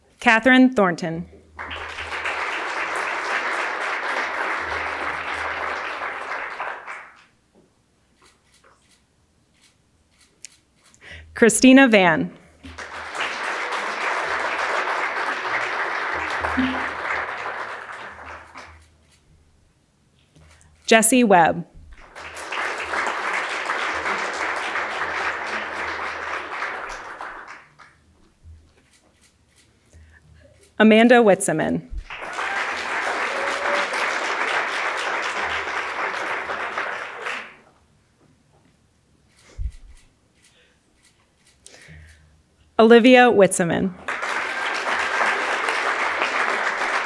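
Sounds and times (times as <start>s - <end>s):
audience applauding: 1.6s - 7.3s, 12.6s - 18.8s, 21.9s - 28.0s, 32.0s - 37.8s, 44.0s - 47.0s.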